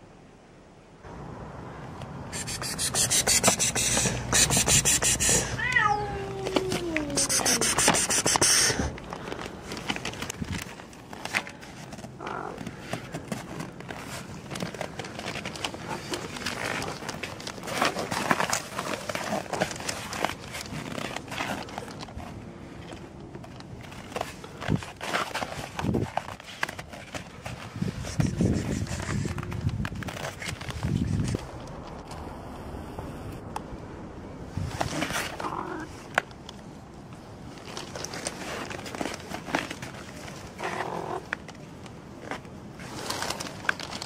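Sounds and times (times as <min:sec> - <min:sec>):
scuffs and rustles: 0:01.8 - 0:32.2, 0:34.4 - 0:44.0
harsh noise bursts: 0:02.3 - 0:05.6, 0:07.1 - 0:09.0
cat meowing: 0:04.9 - 0:07.7.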